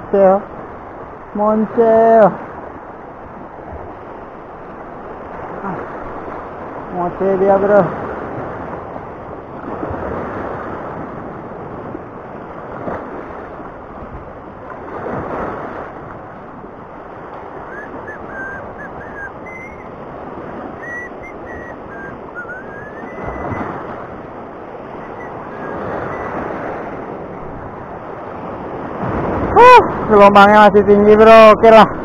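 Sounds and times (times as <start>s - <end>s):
sea surf washing over rocks: 0.0s - 32.0s
high whistled chirps: 17.5s - 20.0s, 20.7s - 23.8s, 24.8s - 26.5s.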